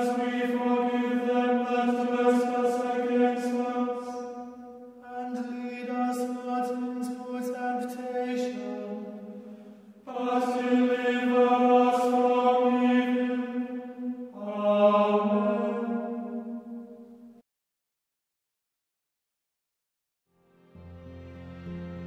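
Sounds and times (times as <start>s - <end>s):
choir singing sacred music: 0.0s - 17.4s.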